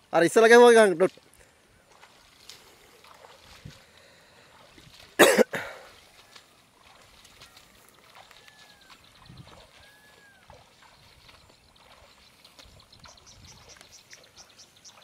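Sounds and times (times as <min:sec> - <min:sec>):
person coughing: 0:05.2 - 0:05.8.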